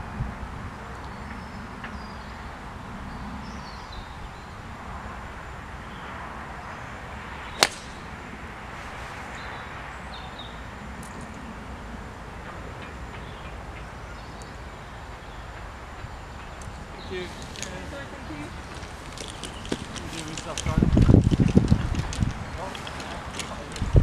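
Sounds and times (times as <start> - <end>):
outdoor background noise: 0.0 - 24.0
golf club striking ball: 7.5 - 8.1.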